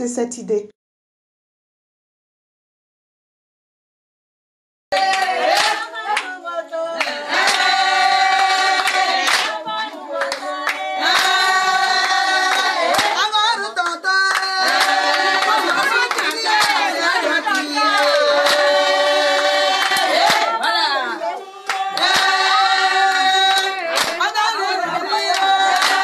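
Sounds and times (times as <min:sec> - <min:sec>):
hand clapping: 0:04.9 - 0:06.4, 0:07.0 - 0:20.9, 0:21.6 - 0:26.0
women singing together: 0:04.9 - 0:26.0.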